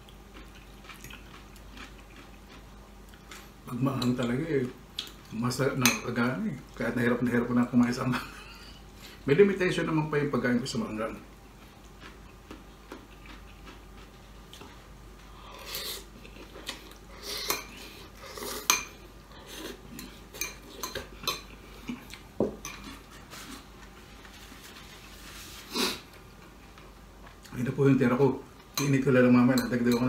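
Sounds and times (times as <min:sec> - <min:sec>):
slurping and chewing: 0:00.0 - 0:03.6, 0:11.5 - 0:27.5.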